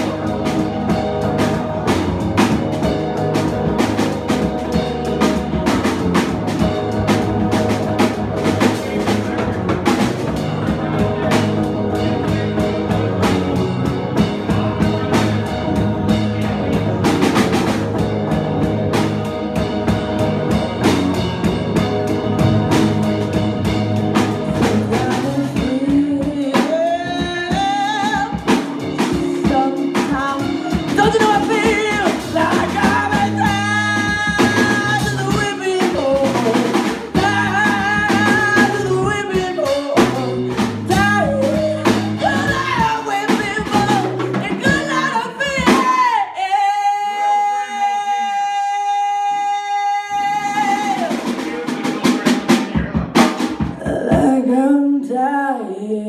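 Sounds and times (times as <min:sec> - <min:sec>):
blues-rock band playing: 0:00.0 - 0:54.4
woman singing lead vocal: 0:24.4 - 0:51.3, 0:53.7 - 0:56.0.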